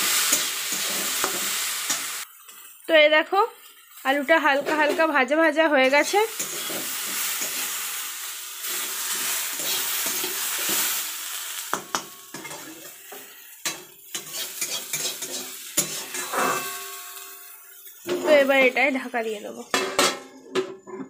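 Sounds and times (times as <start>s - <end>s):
potatoes sizzling in oil: 0.0s - 19.8s
spatula knocking and scraping pan: 13.7s - 17.0s, 19.7s - 21.0s.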